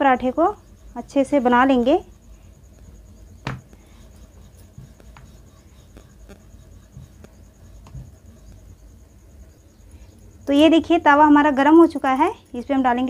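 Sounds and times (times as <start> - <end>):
rolling pin knocking: 3.4 - 3.8
rolling pin rubbing on dough: 3.7 - 8.9.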